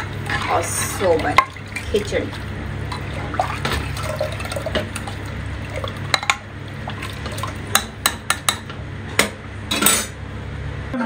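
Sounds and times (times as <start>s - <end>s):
spoon stirring watery food: 0.0s - 8.7s.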